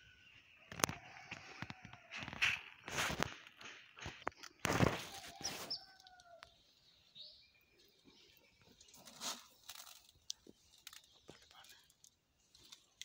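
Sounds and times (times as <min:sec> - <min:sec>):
gritty fertilizer rustles: 0:02.0 - 0:03.6, 0:04.4 - 0:06.0, 0:08.8 - 0:11.8.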